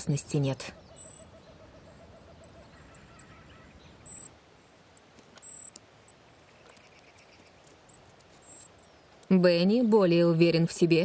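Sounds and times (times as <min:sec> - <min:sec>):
high-pitched bird chirps: 0:00.3 - 0:04.3.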